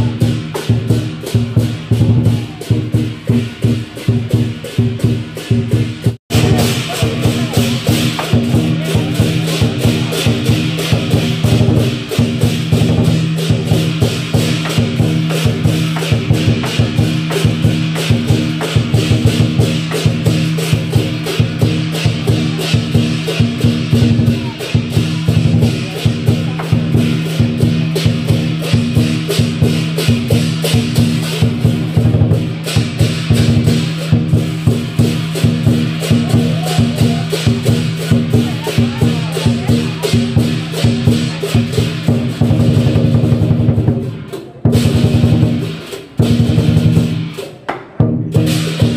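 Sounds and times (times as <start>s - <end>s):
clashing cymbals: 0.0s - 48.9s
large drum beaten fast: 0.0s - 48.9s.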